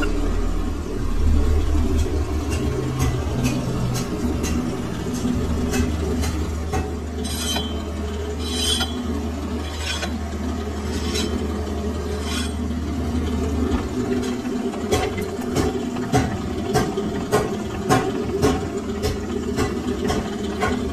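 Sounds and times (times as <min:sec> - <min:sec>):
metal lathe humming: 0:00.0 - 0:13.7
hand file on spinning metal: 0:07.2 - 0:07.8, 0:08.4 - 0:10.2, 0:10.8 - 0:11.4, 0:12.0 - 0:12.7.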